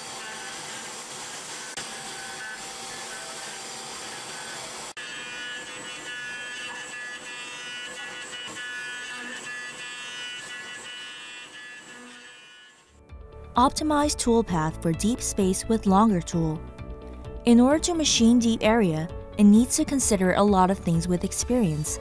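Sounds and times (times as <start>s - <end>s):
milling machine whine: 0.0s - 13.0s.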